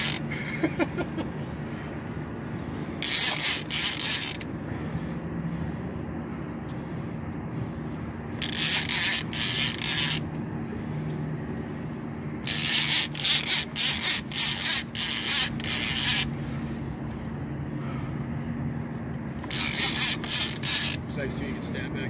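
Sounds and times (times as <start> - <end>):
fishing reel buzzing: 0.0 - 0.3, 2.8 - 4.5, 8.3 - 10.3, 12.4 - 16.6, 19.4 - 21.1
boat engine idling: 0.0 - 22.0.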